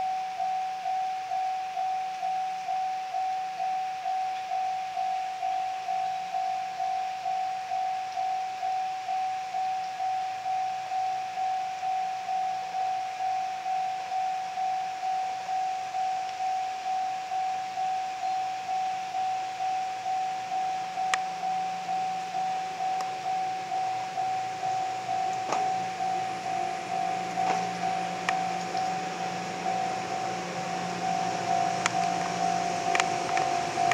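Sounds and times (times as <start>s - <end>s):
level crossing warning bell: 0.0s - 33.9s
sharp clicks: 31.8s - 33.9s.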